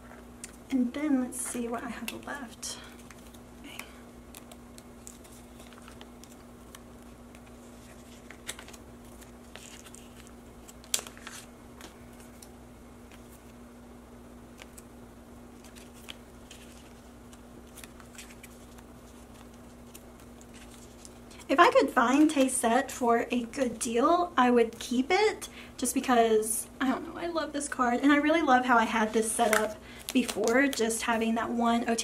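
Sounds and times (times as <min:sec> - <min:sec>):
steady low hum: 0:00.0 - 0:32.0
cards rustling in plastic sleeves: 0:01.2 - 0:13.6, 0:14.5 - 0:22.6, 0:28.4 - 0:31.4.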